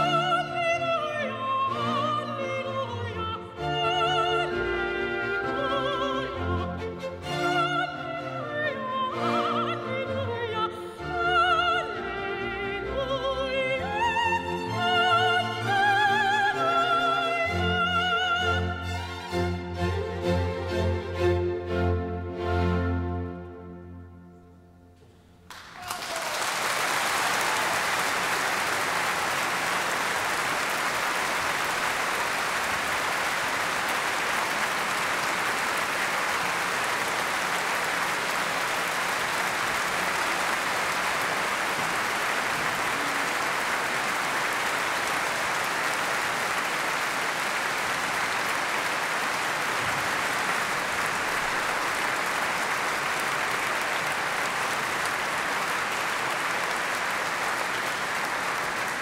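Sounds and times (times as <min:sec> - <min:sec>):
audience applause: 0:25.5 - 0:59.0.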